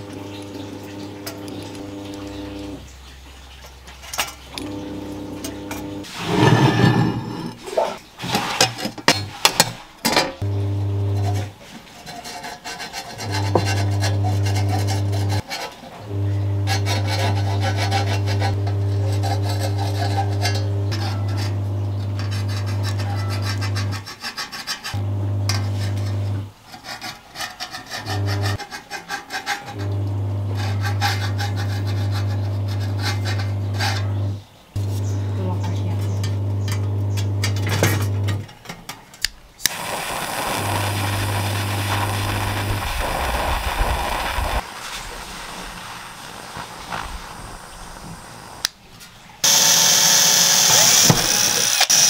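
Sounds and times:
rasping rubbing sound: 6.0 - 9.5, 11.2 - 29.9, 30.5 - 34.2, 39.7 - 48.3
power tool humming: 39.7 - 44.6, 49.4 - 52.0.

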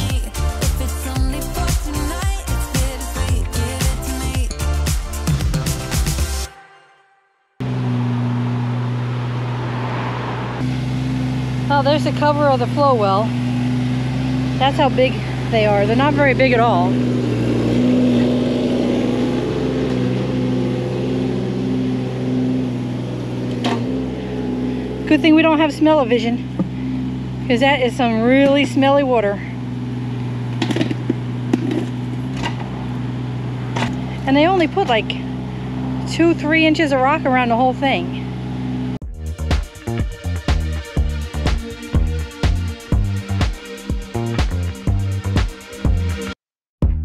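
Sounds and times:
background music with steady beat: 0.0 - 6.8, 39.0 - 47.0
excavator diesel engine running: 7.6 - 46.4.

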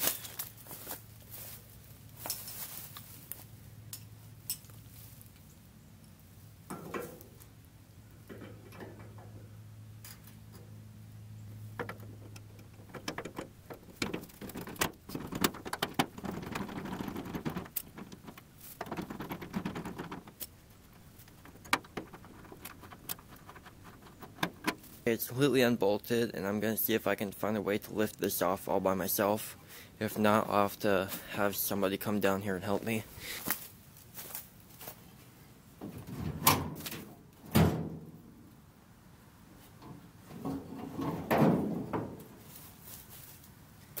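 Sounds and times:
low steady hum: 0.1 - 34.1.

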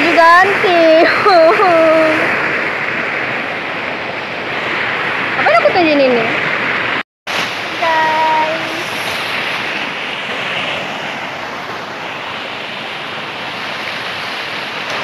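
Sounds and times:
waterfall rushing over rocks: 7.3 - 10.0.

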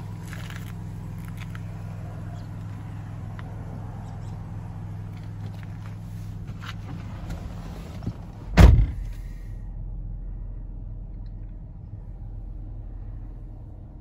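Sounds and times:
van engine idling: 0.0 - 14.0
van door slamming: 6.8 - 9.2.

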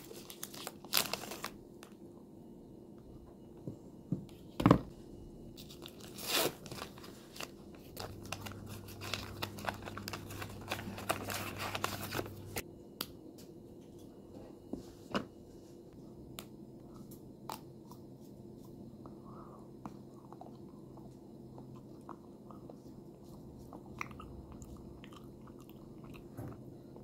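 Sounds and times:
foil wrapper crinkling and tearing: 0.0 - 1.6, 5.6 - 12.6.

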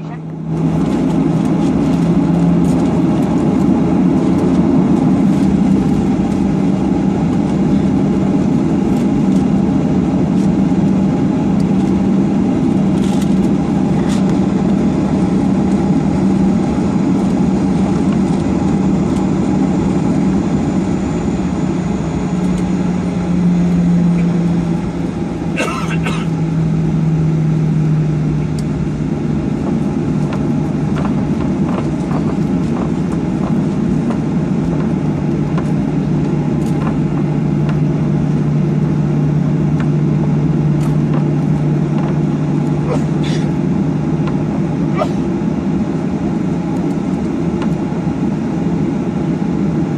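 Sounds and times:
jet engines at high power: 0.0 - 49.9.

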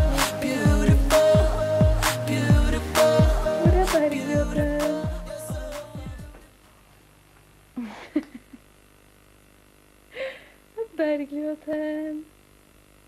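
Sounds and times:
woman calling in sing-song tone: 0.0 - 6.4
tape hiss: 0.0 - 13.0.

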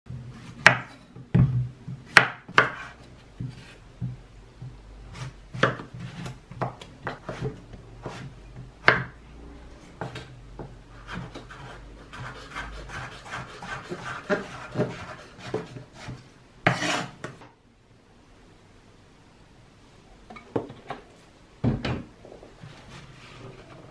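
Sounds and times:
knife chopping on wooden board: 0.6 - 1.5, 2.1 - 2.9, 5.1 - 9.1, 11.1 - 17.1
knife scraping board: 2.5 - 3.8, 5.1 - 8.3, 11.0 - 17.3.

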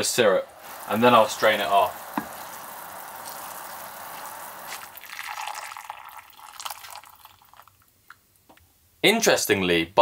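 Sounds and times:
syrup simmering in a frying pan: 0.0 - 8.2
syrup trickling and dripping: 0.0 - 8.2.

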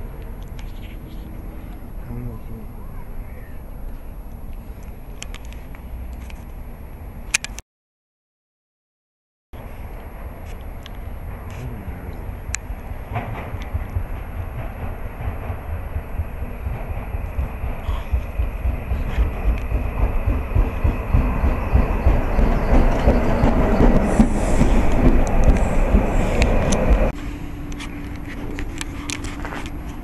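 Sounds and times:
electric train approaching: 9.6 - 30.0
wheels clattering over rails: 12.3 - 30.0.

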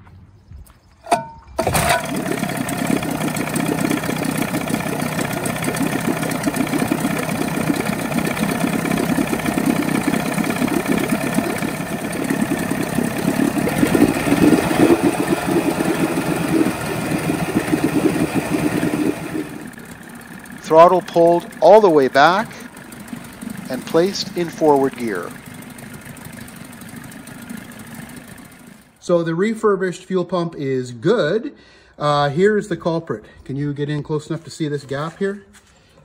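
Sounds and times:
outboard motor running: 1.6 - 29.0.

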